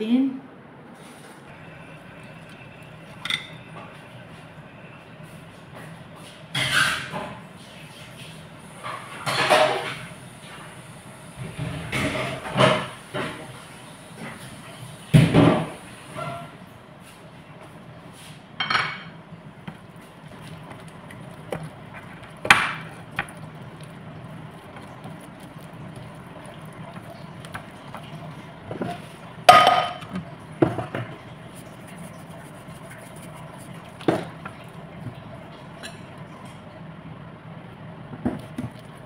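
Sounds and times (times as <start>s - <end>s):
low steady hum: 0.0s - 6.7s, 16.1s - 39.0s
dishes and utensils clinking: 3.1s - 3.9s, 18.6s - 19.2s, 28.7s - 31.2s.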